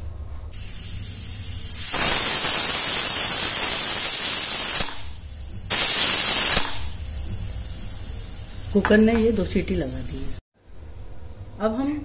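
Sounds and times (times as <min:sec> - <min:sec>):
soft steam hiss: 0:00.5 - 0:10.4
pressure cooker whistling: 0:00.6 - 0:07.0.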